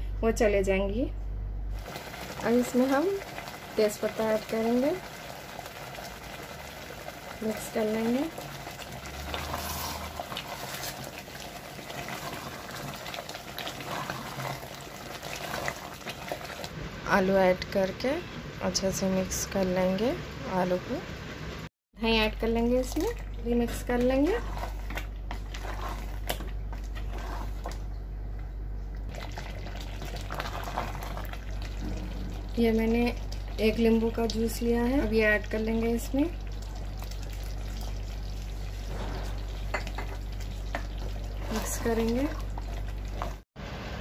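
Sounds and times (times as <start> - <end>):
steady low hum: 0.0 - 4.6, 22.0 - 43.4
thick gravy bubbling: 1.7 - 16.8, 22.8 - 43.4
spatula stirring: 7.5 - 16.7, 22.8 - 27.9, 29.1 - 35.2, 36.5 - 43.4.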